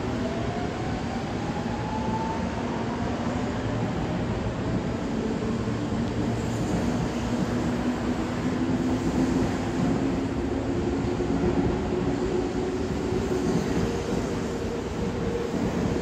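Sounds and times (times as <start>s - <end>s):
wheels rumbling on rail: 3.5s - 16.0s.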